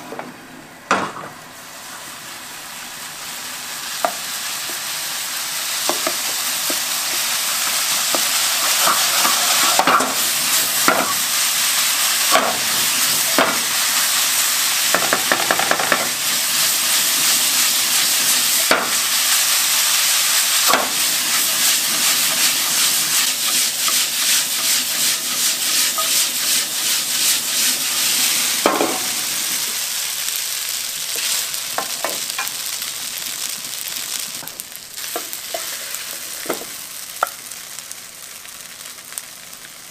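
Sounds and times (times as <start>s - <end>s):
rice sizzling in a frying pan: 1.6s - 39.9s
wooden spoon scraping a pan: 20.6s - 29.1s.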